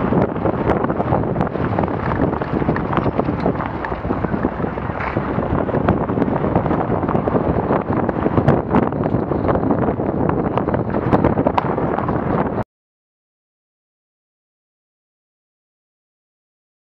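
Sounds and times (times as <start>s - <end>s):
tyres rumbling on gravel: 0.0s - 12.6s
wind buffeting microphone: 0.0s - 12.6s.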